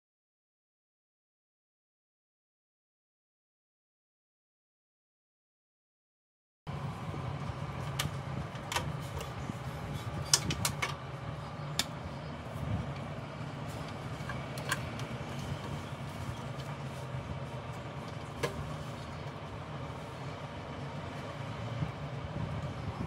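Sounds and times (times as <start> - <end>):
steady low hum: 6.7 - 23.0
cables and connectors clicking: 7.8 - 9.4, 10.1 - 11.0, 11.6 - 12.1, 13.7 - 15.8.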